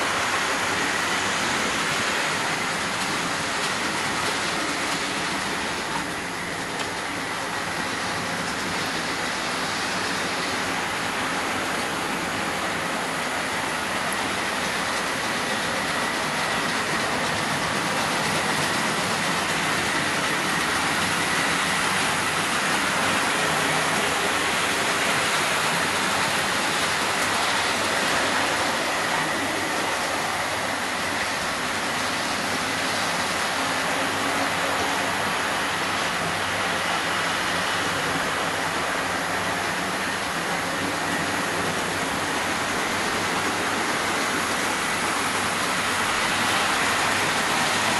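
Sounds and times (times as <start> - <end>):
model trains running on track: 0.0 - 47.9.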